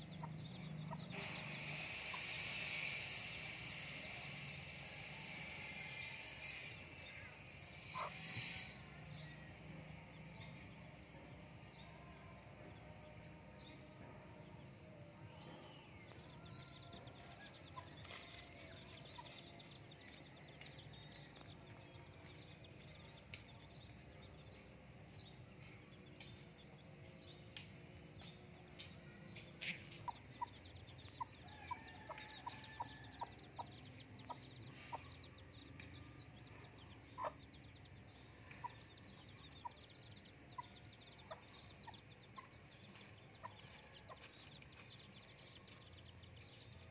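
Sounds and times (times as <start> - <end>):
hen clucking softly: 7.8 - 8.7, 37.1 - 37.4, 40.5 - 44.4.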